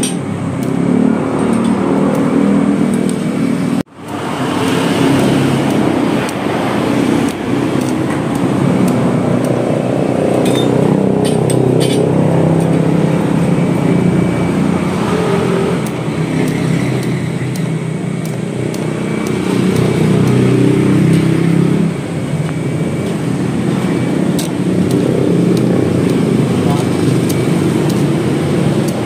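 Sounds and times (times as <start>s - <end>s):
vehicle engine humming: 0.0s - 29.0s
sharp clicks: 4.0s - 12.0s, 15.8s - 21.4s, 24.3s - 29.0s.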